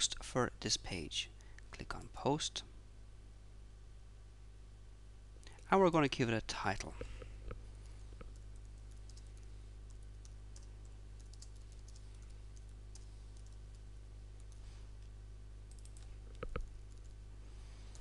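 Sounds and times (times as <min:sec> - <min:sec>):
computer keyboard typing: 0:08.2 - 0:13.8, 0:14.4 - 0:14.6, 0:15.7 - 0:17.2.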